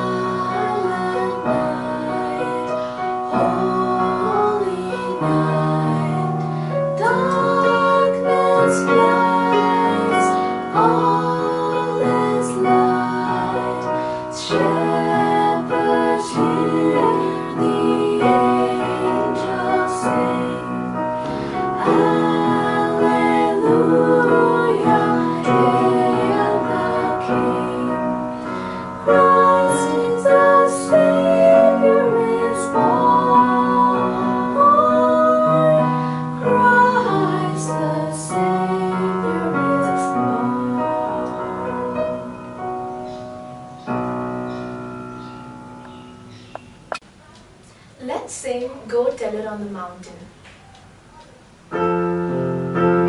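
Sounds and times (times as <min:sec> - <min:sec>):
women singing a carol: 0:00.0 - 0:42.3
electronic keyboard piano accompaniment: 0:00.0 - 0:47.6, 0:50.6 - 0:53.0.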